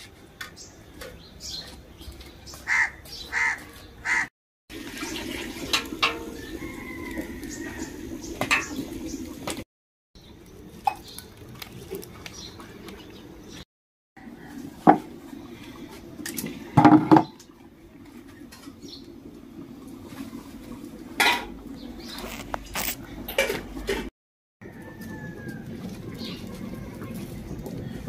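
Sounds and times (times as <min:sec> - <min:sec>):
bird chirp: 0:21.8 - 0:23.0.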